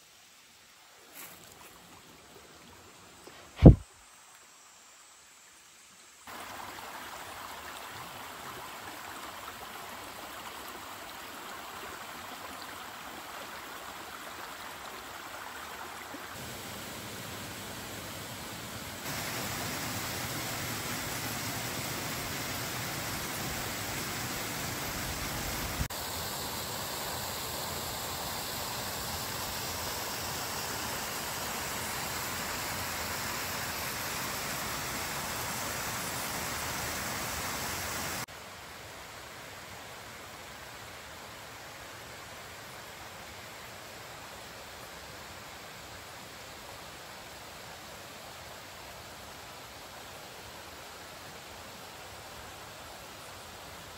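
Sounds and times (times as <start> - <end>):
water rushing over rocks: 6.3 - 38.3.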